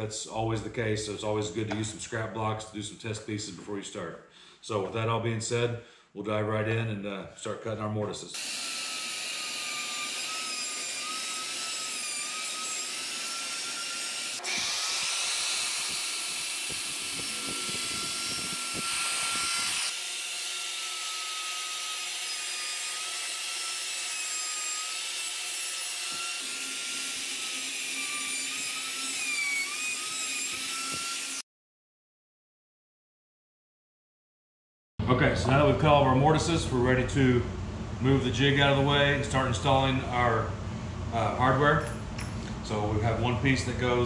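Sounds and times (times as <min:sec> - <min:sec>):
router whining while cutting wood: 0:08.4 - 0:31.4.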